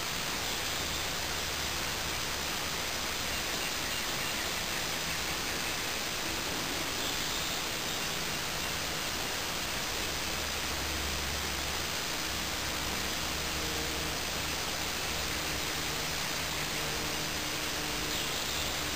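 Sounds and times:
steady hiss: 0.0 - 18.9.

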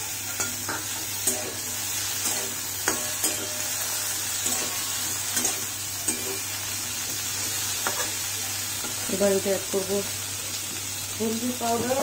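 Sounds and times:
vegetables sizzling in oil: 0.0 - 12.0
metal spatula scraping pan: 0.2 - 6.6.

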